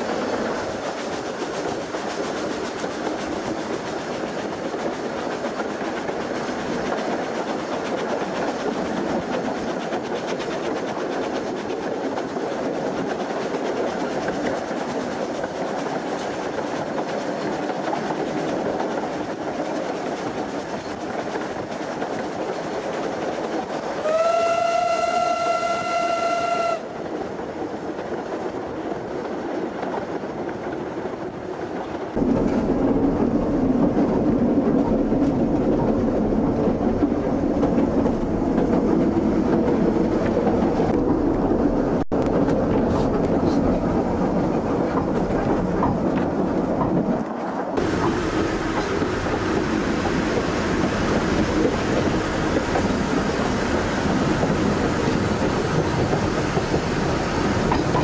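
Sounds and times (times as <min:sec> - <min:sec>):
train running noise: 0:00.0 - 0:58.0
steam locomotive whistle: 0:24.0 - 0:26.9.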